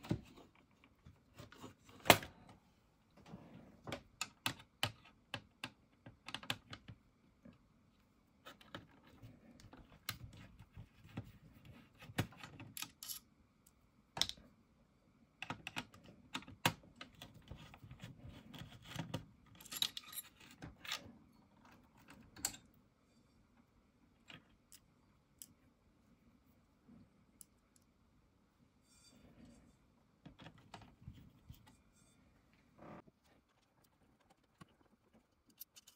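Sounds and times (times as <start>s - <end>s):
screwdriver clicks and scrapes: 33.8s - 35.9s.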